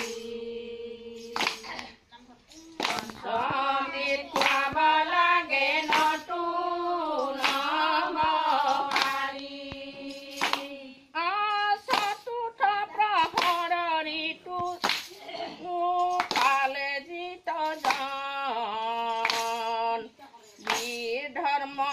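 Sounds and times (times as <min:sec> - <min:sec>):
hand claps: 0:00.0 - 0:00.3, 0:01.2 - 0:02.0, 0:02.6 - 0:10.8, 0:11.6 - 0:12.4, 0:13.0 - 0:15.2, 0:16.0 - 0:17.0, 0:17.6 - 0:18.4, 0:19.1 - 0:19.8, 0:20.6 - 0:21.1
women singing in unison: 0:00.0 - 0:21.9.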